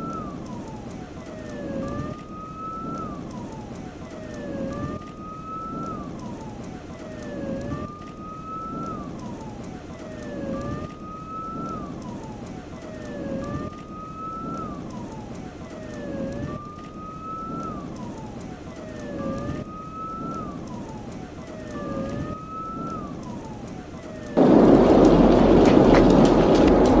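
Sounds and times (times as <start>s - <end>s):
siren wailing: 0.0s - 27.0s
loud rushing noise: 24.4s - 27.0s.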